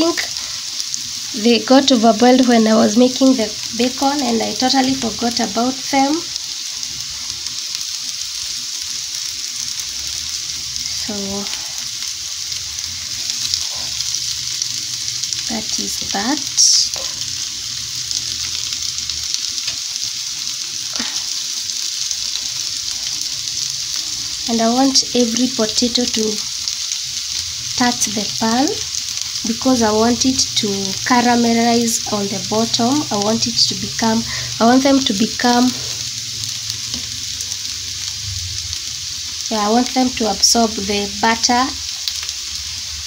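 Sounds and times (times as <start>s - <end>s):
potatoes sizzling in a frying pan: 0.0s - 43.0s.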